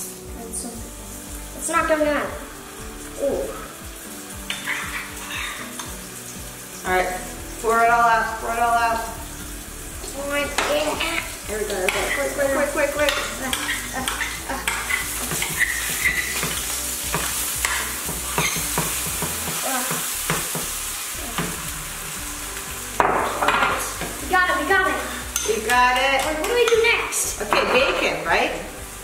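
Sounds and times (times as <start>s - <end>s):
batter sizzling in frying pan: 0.0s - 29.0s
spatula scraping pan: 4.5s - 6.0s, 10.5s - 21.7s
metal spoon scraping bowl: 13.0s - 16.6s, 17.6s - 18.7s.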